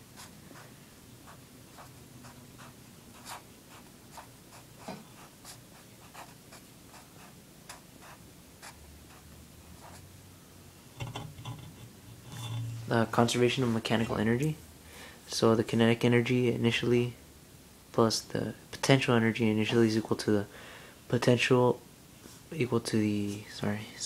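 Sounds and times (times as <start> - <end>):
marker scratching on paper: 0.0 - 0.6, 1.2 - 10.1.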